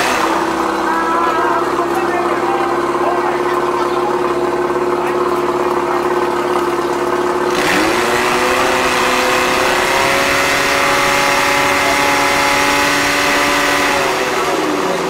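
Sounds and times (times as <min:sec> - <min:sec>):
pump engine running at high revs: 0:00.0 - 0:15.0.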